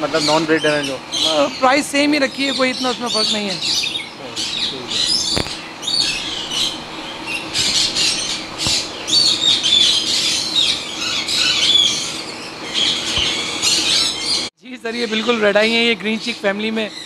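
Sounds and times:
faint steady hum: 0:00.8 - 0:14.4
parrots squawking: 0:02.5 - 0:14.4.

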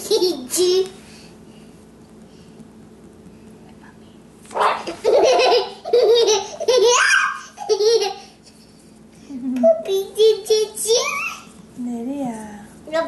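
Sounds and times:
toddler laughing: 0:04.8 - 0:08.4.

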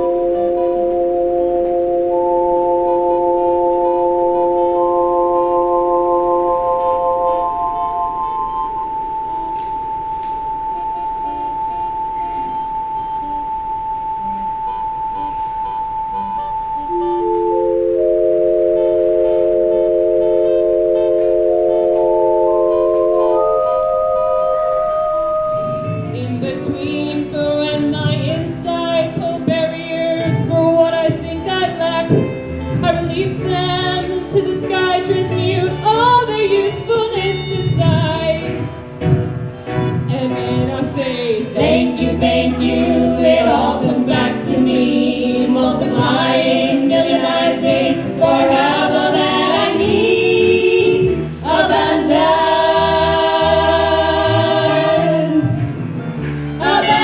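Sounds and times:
choir singing: 0:41.6 - 0:55.8, 0:56.6 - 0:57.0.

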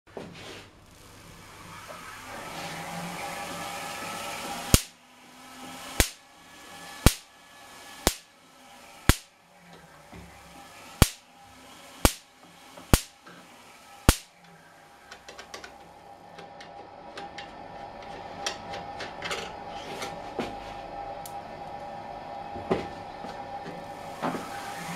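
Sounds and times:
hand-cranked machine whirring: 0:00.8 - 0:20.5, 0:23.2 - 0:24.9
electric spark cracks: 0:04.7 - 0:05.0, 0:06.0 - 0:06.2, 0:07.0 - 0:07.3, 0:08.0 - 0:08.3, 0:09.1 - 0:09.3, 0:11.0 - 0:11.2, 0:12.0 - 0:12.3, 0:12.9 - 0:13.2, 0:14.0 - 0:14.3.

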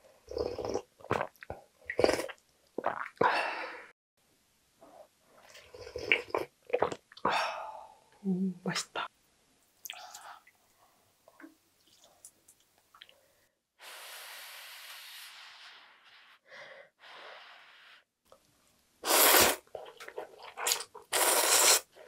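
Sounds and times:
noodles being slurped: 0:19.1 - 0:22.0.

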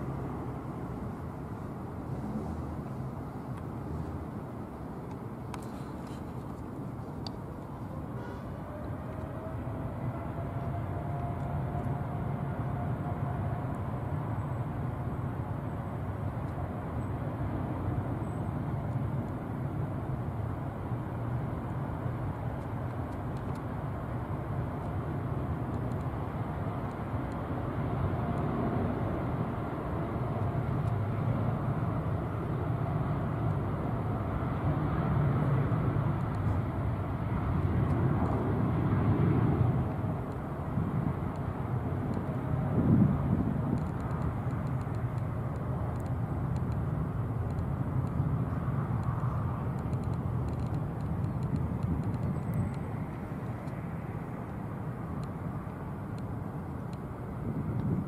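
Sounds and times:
jet engine rumble: 0:00.0 - 0:10.6, 0:13.9 - 0:58.0
faint high engine whine: 0:00.0 - 0:58.0.

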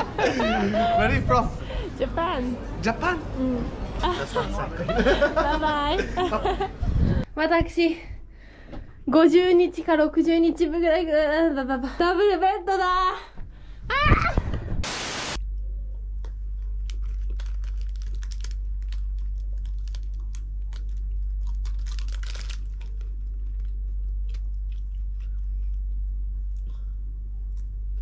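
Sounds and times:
steady low hum: 0:00.0 - 0:28.0
food being chewed: 0:15.9 - 0:27.9
plastic bag crinkling: 0:16.8 - 0:23.9.

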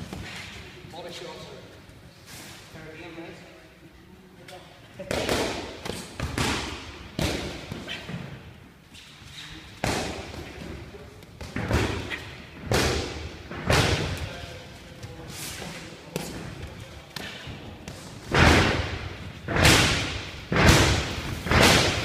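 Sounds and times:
boxing gloves thudding: 0:17.2 - 0:22.0.

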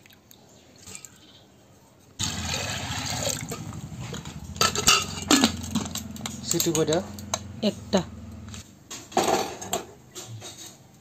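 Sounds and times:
water pouring into pot: 0:02.2 - 0:06.0.

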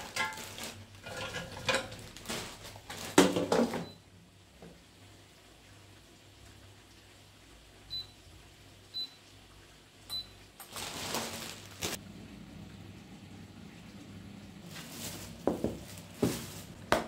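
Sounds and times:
fan humming: 0:10.1 - 0:17.0.

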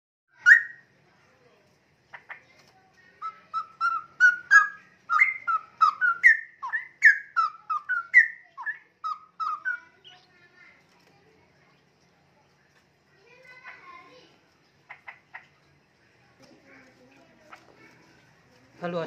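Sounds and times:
bird whistling: 0:00.4 - 0:00.8, 0:03.2 - 0:10.2.

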